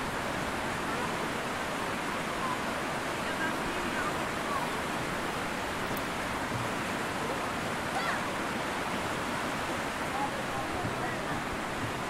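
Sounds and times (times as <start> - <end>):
river water rushing: 0.0 - 12.0.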